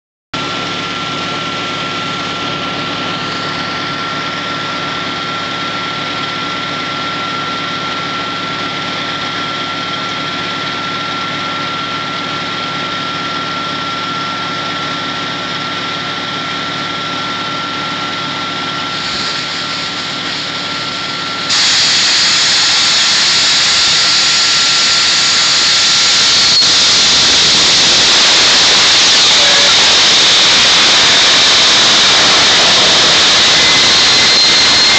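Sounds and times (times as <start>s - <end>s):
drilling rig engine droning: 0.4s - 34.9s
rush of air and water blasting: 18.8s - 34.9s.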